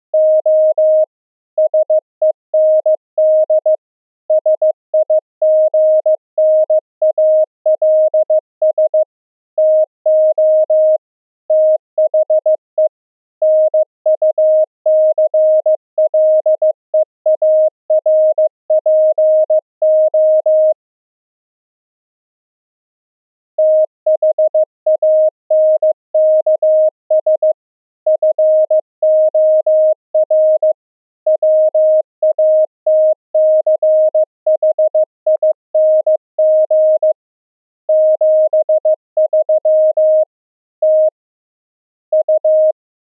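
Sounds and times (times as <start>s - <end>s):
morse code beeps: 23.6s - 27.6s, 31.4s - 37.2s, 37.9s - 41.1s, 42.2s - 42.7s.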